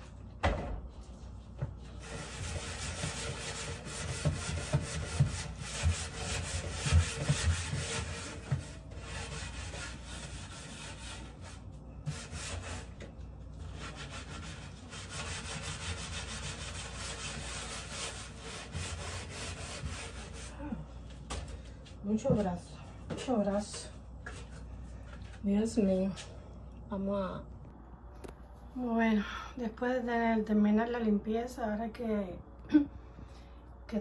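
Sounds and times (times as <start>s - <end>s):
sponge scrubbing wooden door: 1.0s - 13.0s, 13.6s - 20.7s.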